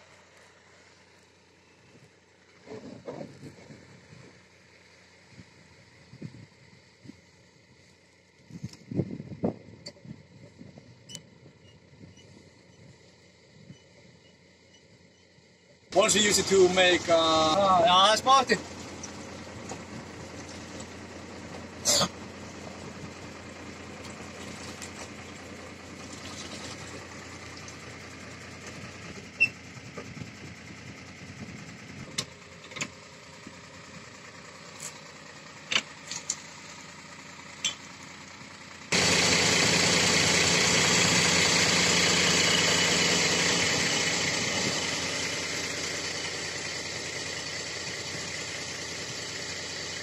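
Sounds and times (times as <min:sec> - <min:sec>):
diesel engine running: 0:00.0 - 0:50.0.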